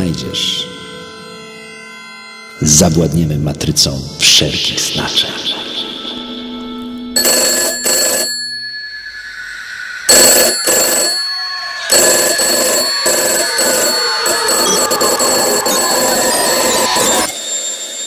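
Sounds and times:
telephone mechanical bell ringing: 7.2s - 9.4s, 10.1s - 18.0s.

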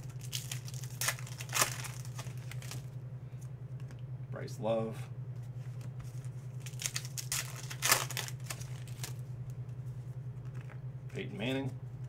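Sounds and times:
foil wrapper crinkling and tearing: 0.0s - 2.9s, 6.6s - 9.2s.

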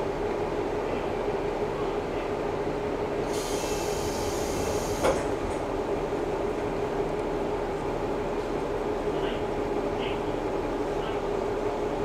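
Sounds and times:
diesel railcar idling hum: 0.0s - 12.0s
air hiss: 3.3s - 5.2s
sliding doors thud: 5.0s - 5.6s.

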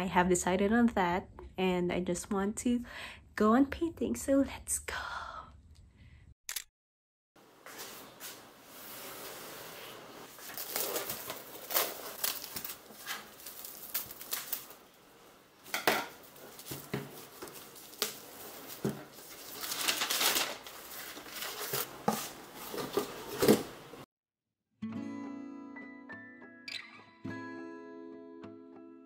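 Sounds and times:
rustling: 7.6s - 23.8s.

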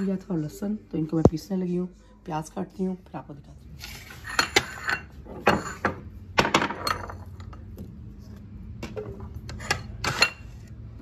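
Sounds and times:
china plates clinking on stone: 4.2s - 6.0s.

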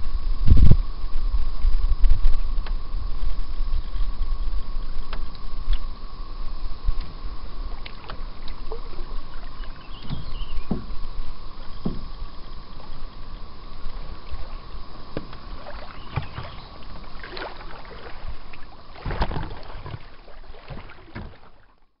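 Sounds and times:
wind rumble on microphone: 0.0s - 21.5s
faint steady whine: 0.0s - 22.0s
water splashes: 6.9s - 21.9s.

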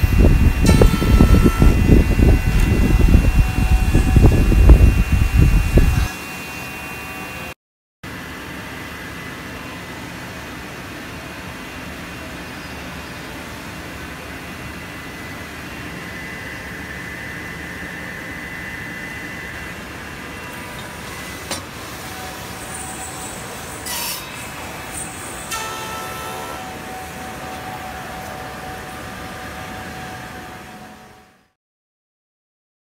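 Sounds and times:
machinery drone: 0.0s - 7.5s, 8.1s - 31.6s
thin high whine: 0.0s - 7.6s, 14.2s - 31.5s
circular saws running: 0.0s - 12.4s, 13.8s - 31.4s.

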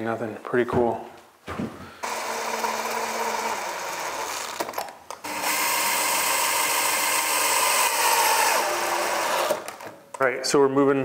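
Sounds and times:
cordless drill whining: 2.0s - 9.9s.

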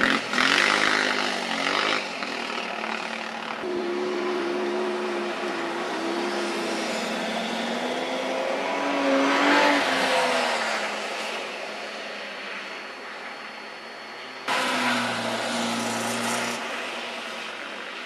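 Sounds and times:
car engine revving: 3.6s - 11.4s, 14.5s - 17.4s.

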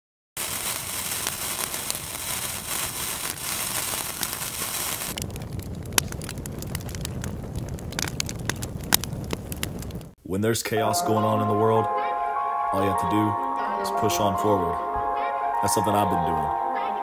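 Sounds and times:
fire crackling and hissing: 0.4s - 10.2s
low fire rumble: 0.4s - 10.2s.

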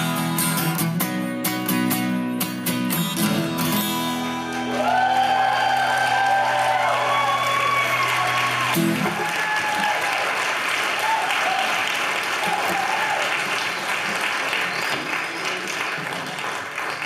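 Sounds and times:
audience applauding and cheering: 3.9s - 17.0s.

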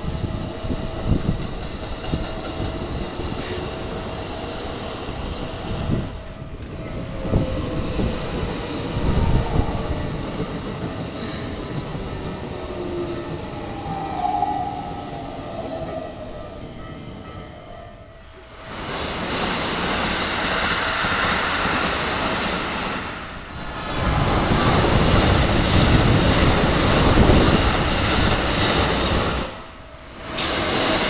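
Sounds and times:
train wheels rumbling and clattering: 0.0s - 31.0s
level crossing warning bell: 15.0s - 18.4s.

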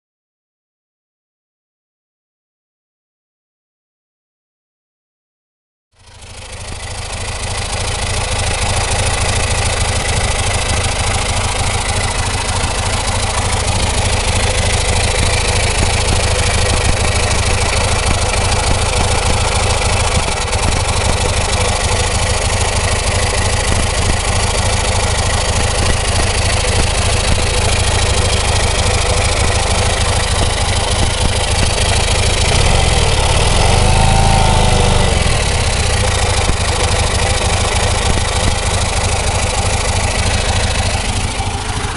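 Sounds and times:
car engine idling: 6.0s - 41.9s.

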